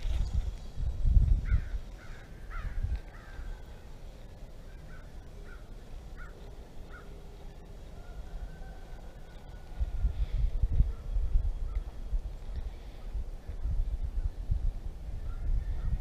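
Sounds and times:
bird calling: 1.4 - 4.0, 4.6 - 10.3.

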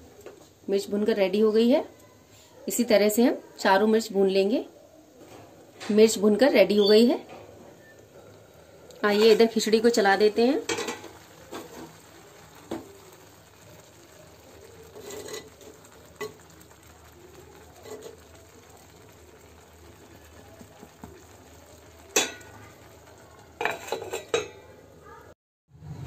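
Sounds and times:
boiling pot hiss: 4.1 - 25.0
ladle scraping and knocking pot: 9.1 - 9.6, 10.6 - 11.9, 14.9 - 16.4, 23.6 - 24.6.

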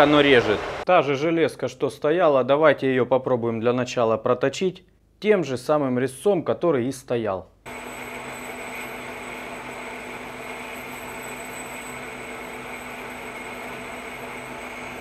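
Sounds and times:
metal lathe whirring: 7.7 - 15.0.

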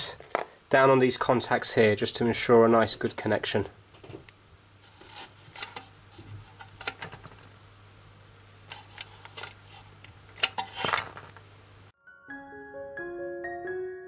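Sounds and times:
small handling clicks and rubs: 4.8 - 7.5, 8.7 - 11.4.

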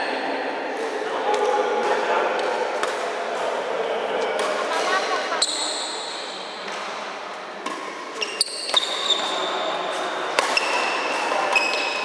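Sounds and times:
racket hitting shuttlecock: 1.4 - 3.6, 4.4 - 5.0, 7.6 - 12.0
sneakers squeaking on court: 5.2 - 6.5, 8.2 - 12.0.

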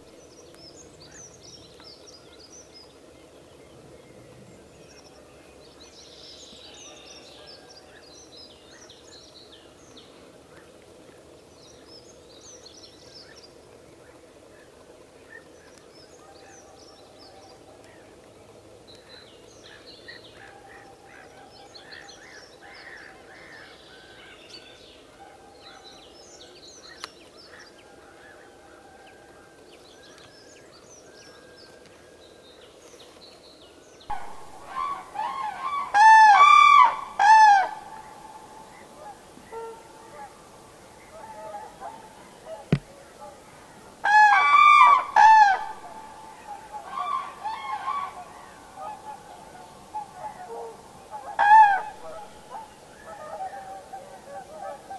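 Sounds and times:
faint bird calls: 34.1 - 54.9
crane trumpeting calls: 34.2 - 40.4, 44.0 - 46.0.

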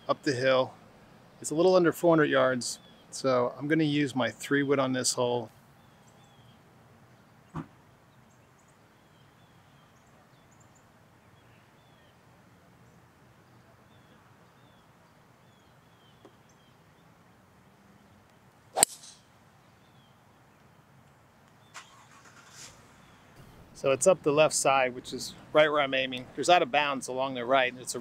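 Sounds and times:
faint bird chirps: 5.8 - 12.2
soft thump: 7.5 - 7.7
golf club striking ball: 18.7 - 19.3.

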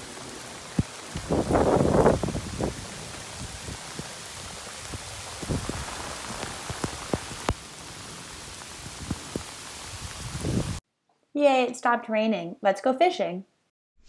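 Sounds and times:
heavy rain hissing: 0.0 - 10.8
raindrops tapping nearby: 0.0 - 10.8.

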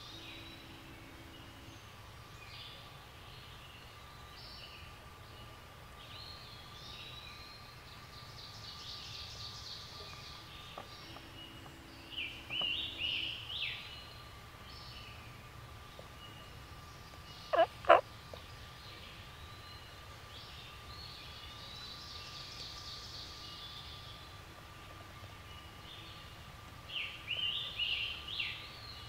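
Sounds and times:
songbirds singing: 0.0 - 29.0.

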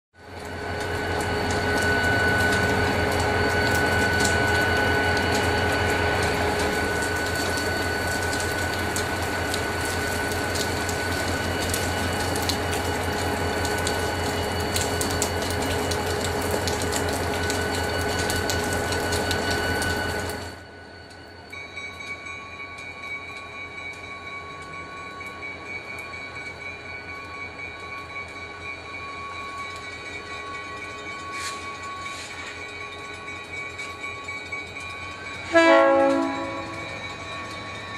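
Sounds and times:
diesel locomotive engine drone: 0.2 - 37.9
distant train approaching: 0.2 - 37.9
crossing bell ringing: 0.3 - 37.9.

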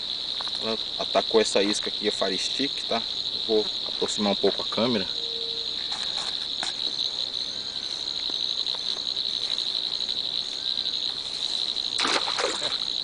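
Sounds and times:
insect chorus trilling: 0.0 - 13.0
fish splashing at surface: 12.0 - 12.9.

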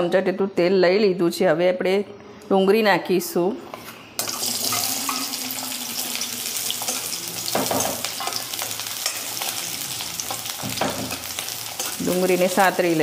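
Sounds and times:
onions sizzling in hot oil: 4.2 - 13.0
spatula stirring in metal pan: 6.7 - 13.0.

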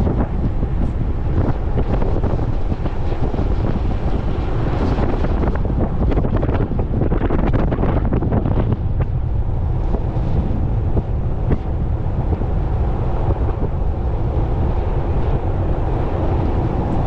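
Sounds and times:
wind buffeting the microphone: 0.0 - 17.0.

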